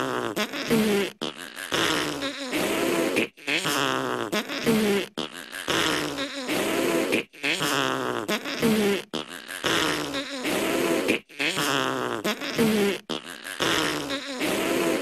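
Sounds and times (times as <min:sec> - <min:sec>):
people blowing raspberries: 0:00.0 - 0:15.0.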